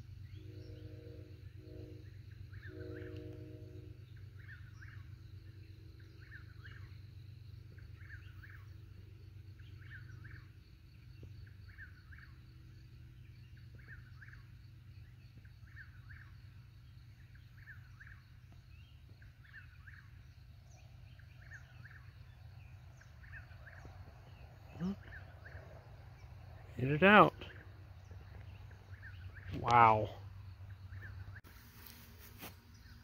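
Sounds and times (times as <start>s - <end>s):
low wind rumble: 14.8s - 31.4s.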